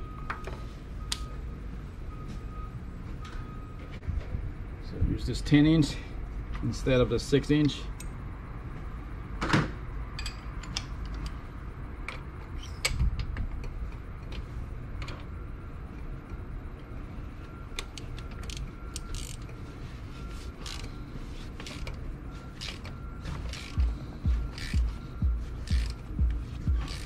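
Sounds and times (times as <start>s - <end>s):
ratchet metal clicks and knocks: 22.6s - 27.0s.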